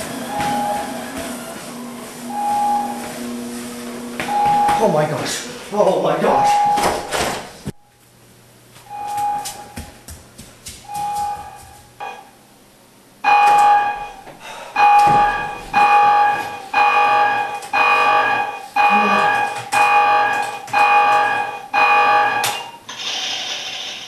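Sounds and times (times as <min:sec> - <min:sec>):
timer alarm beeping: 0:00.0 - 0:01.2, 0:02.3 - 0:03.4, 0:04.2 - 0:05.0, 0:06.2 - 0:07.1, 0:08.9 - 0:09.9, 0:10.8 - 0:12.3, 0:13.2 - 0:14.2, 0:14.8 - 0:22.9.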